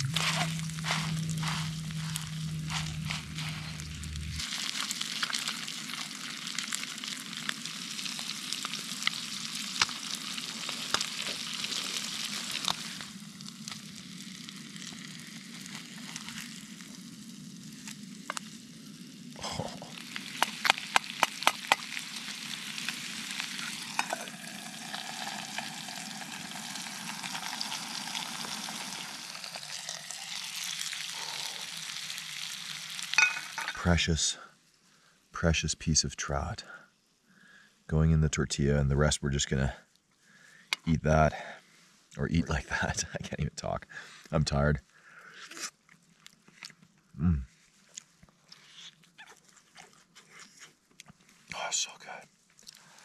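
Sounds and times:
fish sizzling in a pan: 0.0s - 33.8s.

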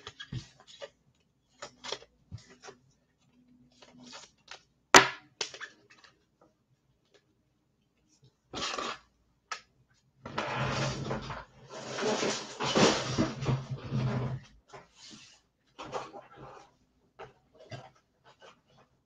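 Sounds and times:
rustling noise: 10.4s - 16.8s.

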